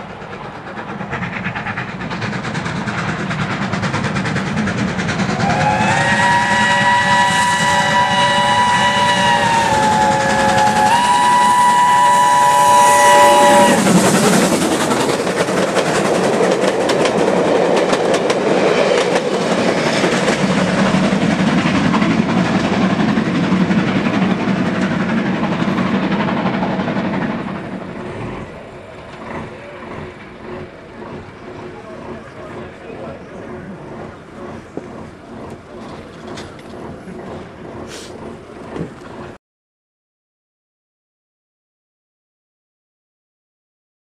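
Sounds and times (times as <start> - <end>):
train wheels clattering over rail joints: 0.0 - 39.4
steam locomotive whistle blast: 5.3 - 14.0.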